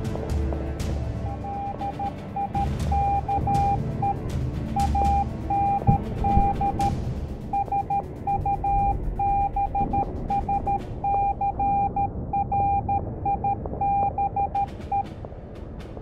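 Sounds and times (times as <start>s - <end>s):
low background rumble: 0.0s - 16.0s
morse code beeps: 1.3s - 4.2s, 4.8s - 6.9s, 7.5s - 15.1s.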